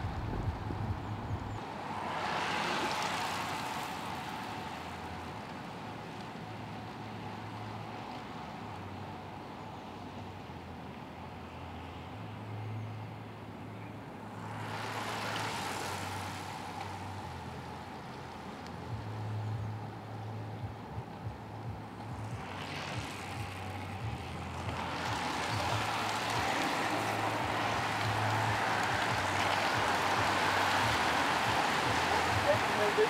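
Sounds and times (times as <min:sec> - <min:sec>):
bicycle tyres whirring past: 0:01.6 - 0:05.4, 0:14.3 - 0:19.2, 0:22.2 - 0:33.0.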